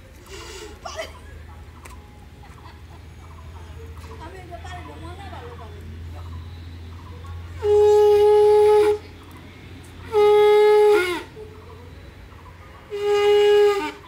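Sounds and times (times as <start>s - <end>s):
conch shell blown: 7.6s - 9.0s, 10.1s - 11.3s, 12.9s - 14.0s.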